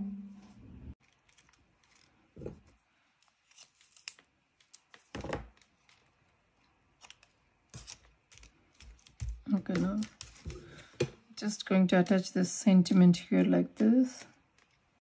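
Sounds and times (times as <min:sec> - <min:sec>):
paper and card rustling: 0:01.0 - 0:11.2.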